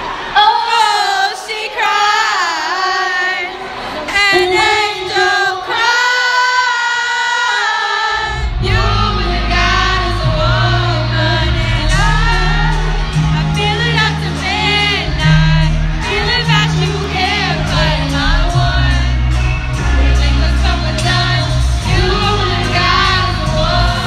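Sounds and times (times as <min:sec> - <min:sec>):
crowd singing along: 0:00.0 - 0:24.0
pop song with female vocals: 0:00.1 - 0:24.0
heavy bass: 0:08.3 - 0:24.0.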